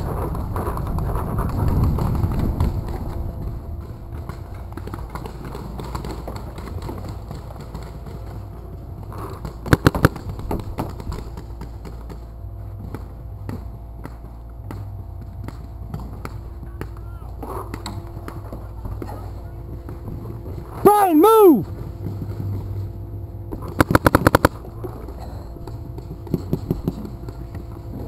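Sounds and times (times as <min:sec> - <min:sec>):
paintball marker shots: 0:09.7 - 0:10.3, 0:23.7 - 0:24.6
faint paintball pops: 0:09.7 - 0:11.1, 0:23.6 - 0:24.6.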